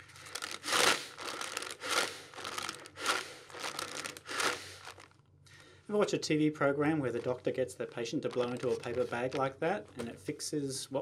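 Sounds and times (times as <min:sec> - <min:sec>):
paper bag crinkling: 0:00.0 - 0:05.2, 0:07.1 - 0:10.0
heavy breathing into paper bag: 0:00.1 - 0:05.9.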